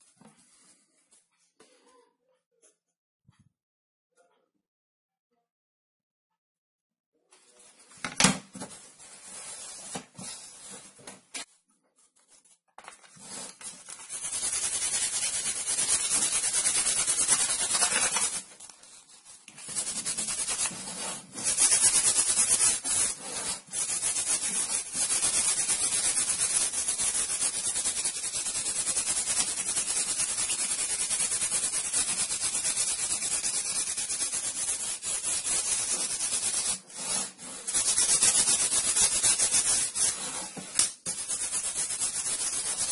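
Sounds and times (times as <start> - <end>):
sanding block rasping on plywood: 13.2 - 18.4, 19.6 - 42.9.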